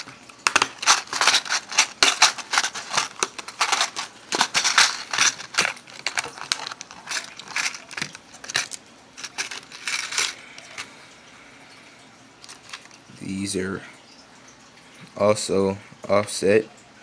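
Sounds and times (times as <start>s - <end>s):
plastic packaging crackling: 0.0s - 11.0s, 12.4s - 13.1s.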